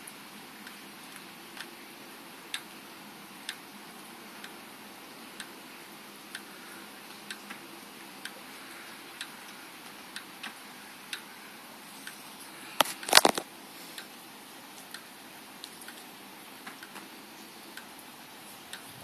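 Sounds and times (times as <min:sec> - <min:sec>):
steady hiss: 0:00.0 - 0:19.0
loud clicks and crackles: 0:12.7 - 0:13.5.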